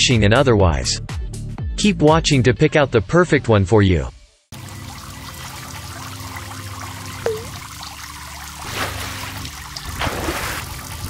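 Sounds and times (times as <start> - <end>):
trickling water: 4.5 - 11.0.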